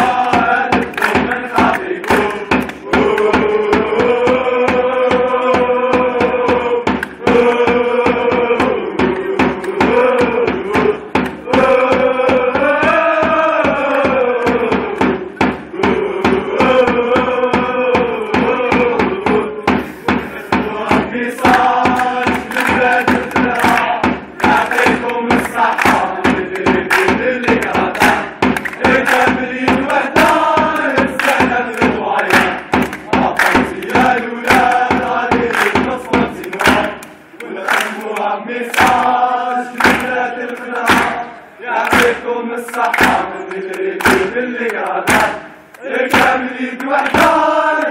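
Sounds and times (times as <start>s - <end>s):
hand drum beating: 0.0s - 37.0s
crowd of men chanting: 0.0s - 47.9s.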